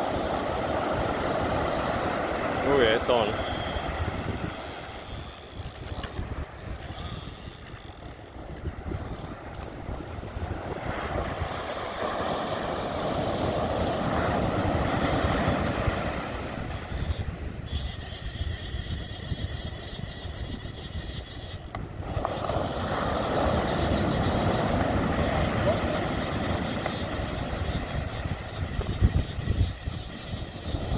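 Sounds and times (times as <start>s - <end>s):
surf breaking on beach: 0.0s - 5.0s, 8.6s - 17.0s, 22.0s - 28.5s
wind buffeting microphone: 0.0s - 30.9s.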